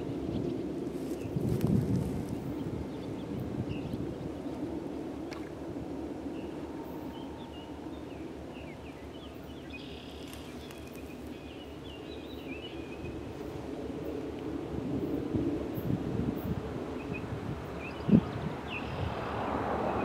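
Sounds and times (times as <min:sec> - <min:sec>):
wind rumble on microphone: 0:00.0 - 0:20.0
small birds chirping: 0:07.2 - 0:13.2.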